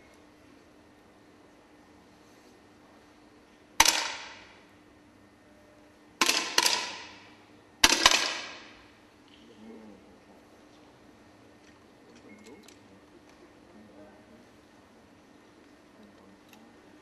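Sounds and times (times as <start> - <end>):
air rifle shots cracking: 3.8 - 4.6, 6.2 - 8.9.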